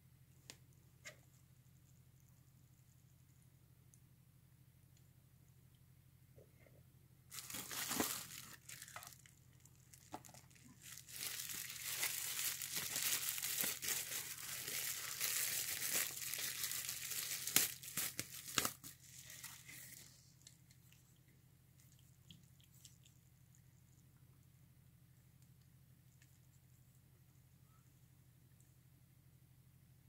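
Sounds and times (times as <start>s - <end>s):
bubble wrap crinkling and rustling: 7.3s - 20.8s.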